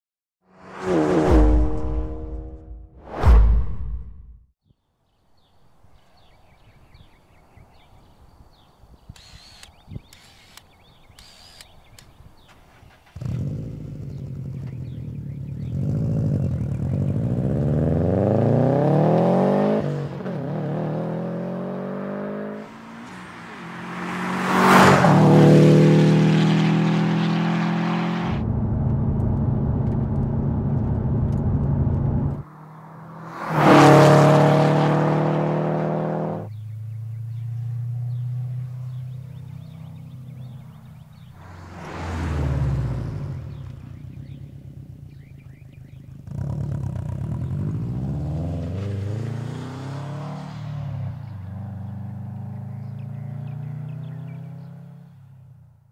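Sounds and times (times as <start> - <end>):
car passing by at speed: 0.5 - 3.2, 17.0 - 28.4, 32.2 - 45.3, 46.2 - 55.3
car engine accelerating: 12.7 - 55.1.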